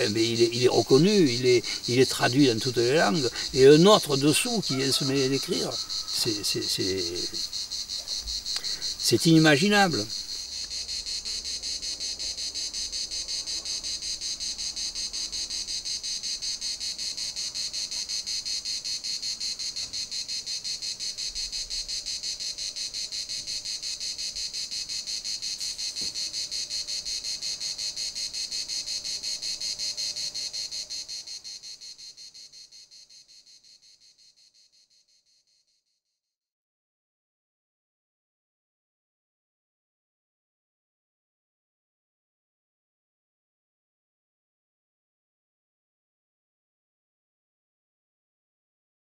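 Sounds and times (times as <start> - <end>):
cicadas singing: 0.0 - 35.6.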